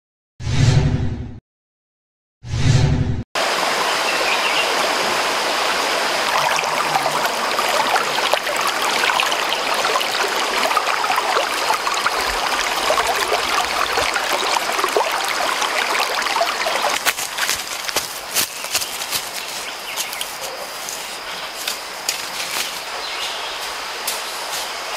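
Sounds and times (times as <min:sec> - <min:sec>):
stream babbling over stones: 0:03.4 - 0:19.5.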